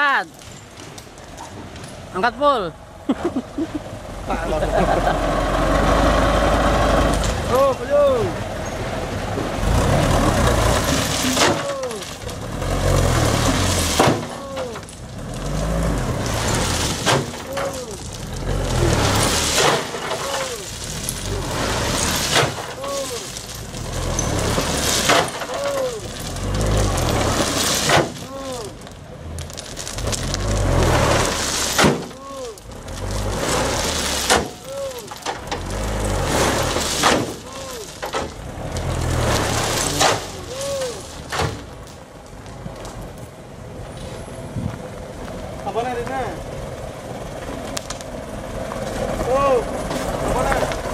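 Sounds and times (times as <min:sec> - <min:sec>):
diesel truck engine surging: 0:02.8 - 0:50.9
crushed stone pouring: 0:09.6 - 0:43.0
rock clattering hits: 0:10.4 - 0:42.0.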